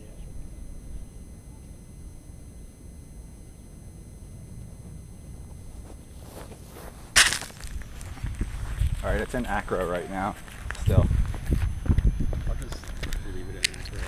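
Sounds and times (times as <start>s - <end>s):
faint high whine: 0.0s - 14.0s
wind rumbling on microphone: 0.0s - 14.0s
rustling: 4.6s - 9.0s.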